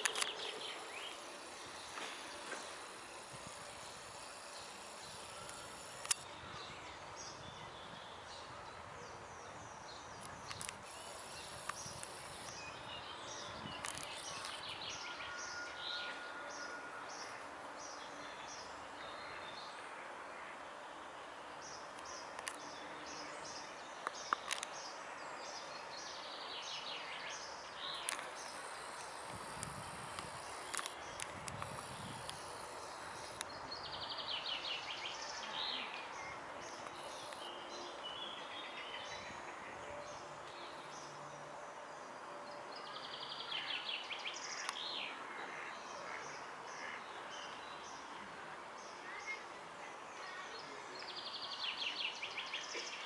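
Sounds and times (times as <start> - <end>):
sharp clicks: 0.0 - 0.5, 4.6 - 6.3
steady background hush: 0.0 - 7.3
small birds chirping: 0.0 - 8.5, 9.1 - 15.0.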